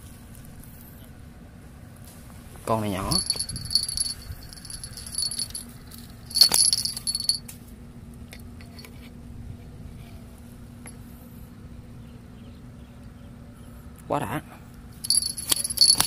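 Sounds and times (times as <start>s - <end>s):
small bell jingling: 3.0s - 7.4s, 15.0s - 16.0s.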